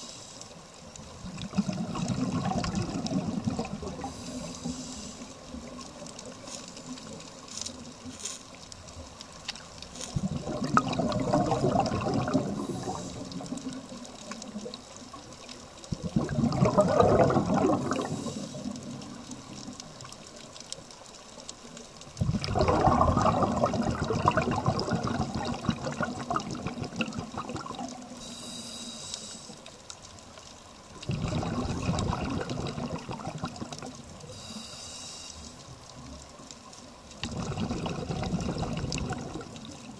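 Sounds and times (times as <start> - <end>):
underwater exhalation bubbles: 1.2 - 4.4, 10.1 - 14.5, 15.9 - 19.6, 22.2 - 28.1, 31.0 - 34.2, 37.2 - 39.9.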